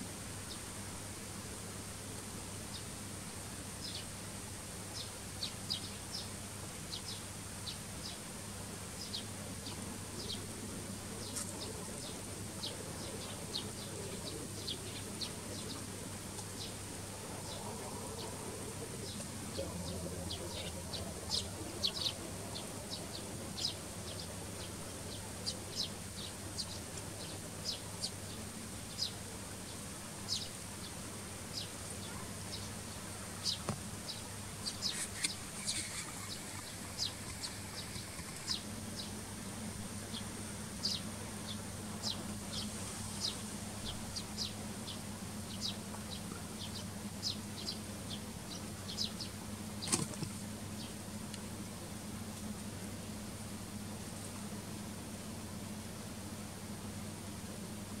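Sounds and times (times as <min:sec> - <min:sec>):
steady low hum: 0:00.0 - 0:58.0
sparrows chirping: 0:04.9 - 0:06.3, 0:06.9 - 0:08.2, 0:09.0 - 0:39.2, 0:40.1 - 0:50.1.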